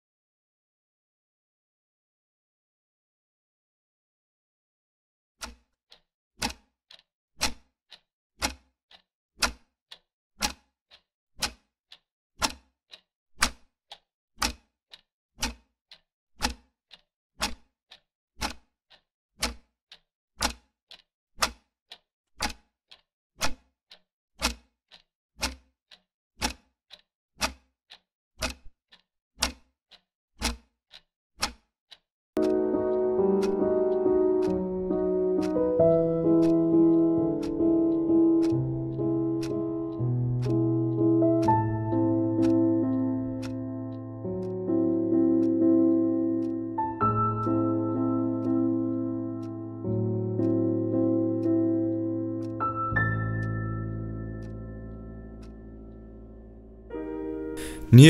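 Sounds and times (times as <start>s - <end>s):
clock ticking: 5.4s - 49.6s, 54.4s - 55.6s, 57.6s - 58.0s.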